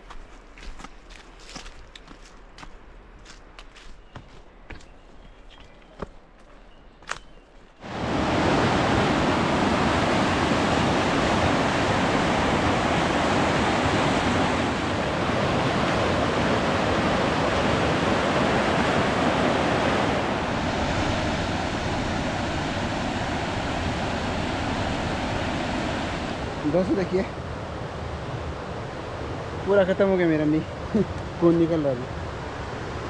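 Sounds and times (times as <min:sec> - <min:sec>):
stream rushing over boulders: 0:07.8 - 0:27.2.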